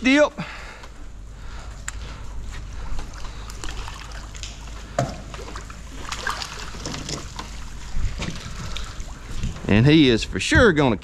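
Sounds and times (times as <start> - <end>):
water splashing and sloshing: 2.0 - 10.2.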